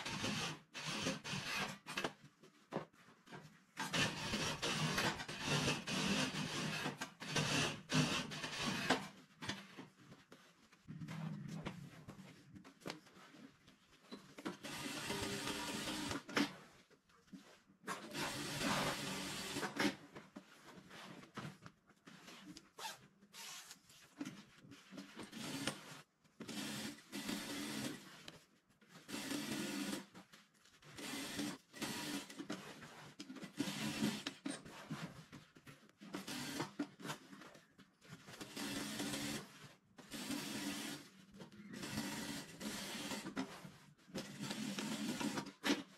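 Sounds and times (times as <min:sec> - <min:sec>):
sewing machine running: 0:14.6 - 0:16.3, 0:18.1 - 0:19.9, 0:26.5 - 0:28.0, 0:29.1 - 0:30.0, 0:31.0 - 0:32.4, 0:33.6 - 0:34.3, 0:38.5 - 0:39.4, 0:40.1 - 0:41.1, 0:41.8 - 0:43.3, 0:44.2 - 0:45.5.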